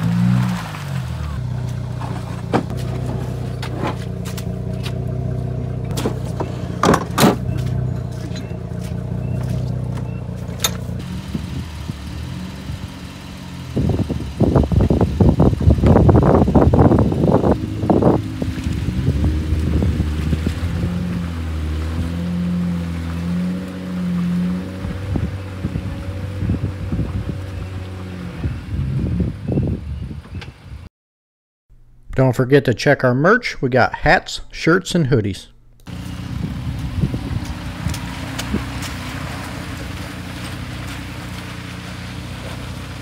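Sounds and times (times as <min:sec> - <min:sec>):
tyres churning in mud: 0:00.0 - 0:29.2, 0:35.8 - 0:43.0
vehicle engines idling: 0:00.0 - 0:29.6, 0:33.7 - 0:43.0.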